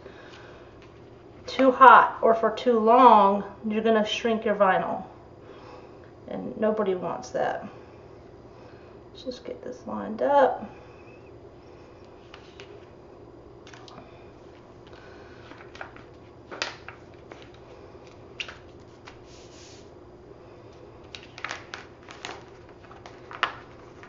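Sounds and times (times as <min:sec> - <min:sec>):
faint steady hum: 0:00.0 - 0:24.0
plastic sheet crinkling: 0:14.5 - 0:19.9, 0:21.0 - 0:24.0.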